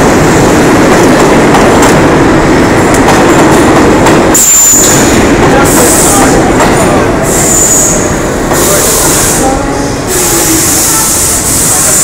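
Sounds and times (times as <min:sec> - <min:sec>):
subway train wheels rumbling: 0:00.0 - 0:12.0
high wheel squeal: 0:07.2 - 0:12.0.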